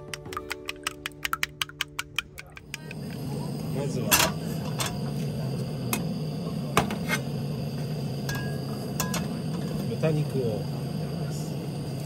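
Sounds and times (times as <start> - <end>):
steady low hum: 2.6 - 12.0.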